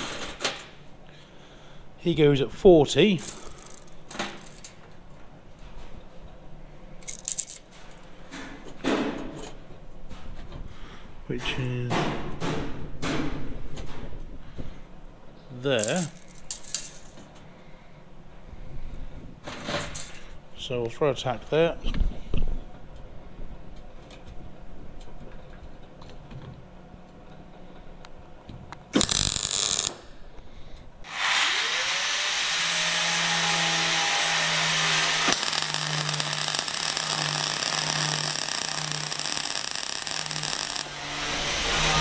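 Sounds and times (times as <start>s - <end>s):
welding arc sizzle: 28.9s - 30.0s, 31.1s - 42.0s.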